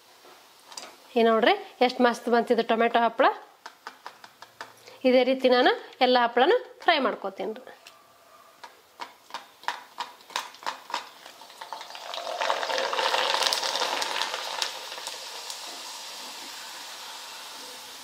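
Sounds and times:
food sizzling in hot oil: 10.3s - 18.0s.

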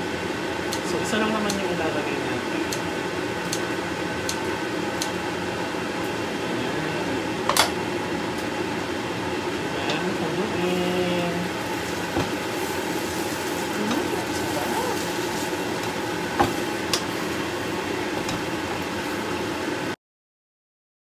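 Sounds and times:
steady fan-like hum: 0.0s - 20.0s.

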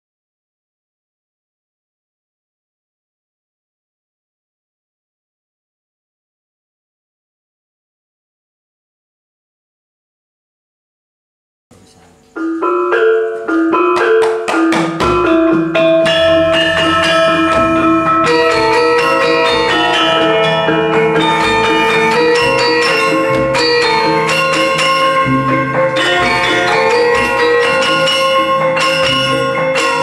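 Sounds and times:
gamelan ensemble playing: 12.4s - 30.0s.

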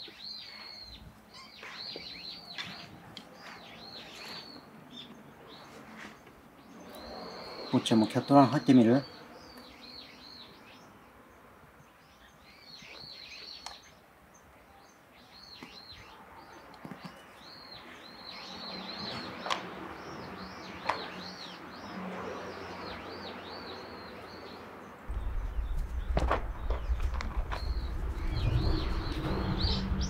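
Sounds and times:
small birds chirping: 0.0s - 30.0s
loud low rumble: 25.1s - 30.0s.

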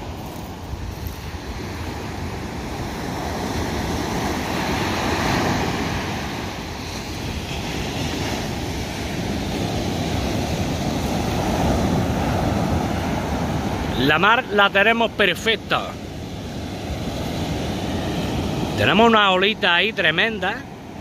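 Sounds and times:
sea waves breaking: 0.0s - 21.0s.

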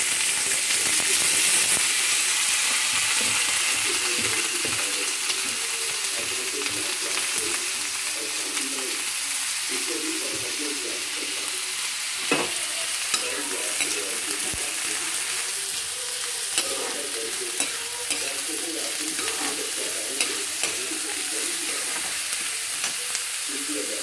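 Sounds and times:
vegetables sizzling in hot oil: 0.0s - 24.0s
metal spatula scraping pan: 16.6s - 23.0s.

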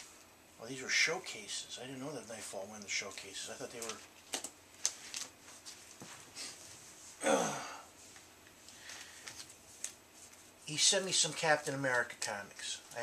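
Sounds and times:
man sighing: 7.2s - 7.9s.

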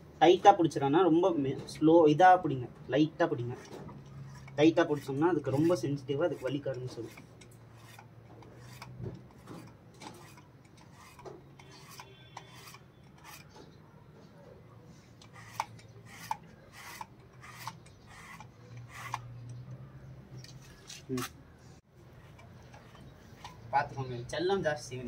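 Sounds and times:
brush rasping through dog fur: 4.3s - 7.2s, 15.3s - 19.2s.

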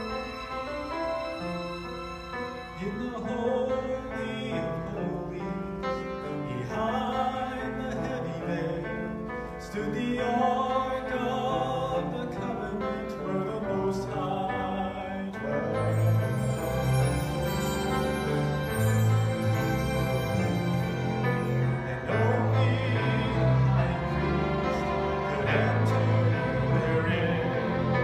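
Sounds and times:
instrumental accompaniment: 0.0s - 4.1s, 14.8s - 28.0s
man singing into a microphone: 2.8s - 16.5s, 20.2s - 28.0s.

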